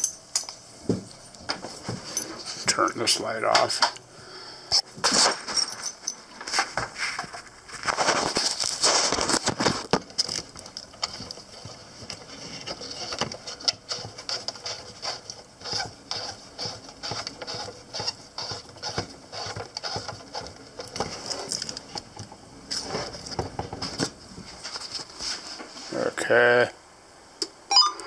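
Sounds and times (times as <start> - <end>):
radio static crackling and popping: 2.6 - 4.0, 6.4 - 26.7.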